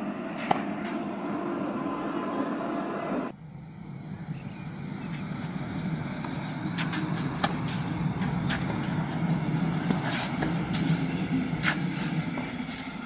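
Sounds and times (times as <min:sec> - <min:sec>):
steady low rumble: 0:00.0 - 0:13.0
racket hitting tennis ball: 0:00.4 - 0:01.0, 0:06.2 - 0:12.6.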